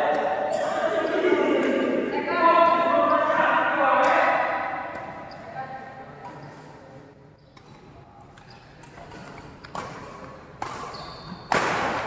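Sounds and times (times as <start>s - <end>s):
court shoes squeaking: 0.1s - 1.8s, 4.8s - 12.0s
racket hitting shuttlecock: 0.1s - 1.9s, 4.0s - 5.5s, 7.6s - 12.0s.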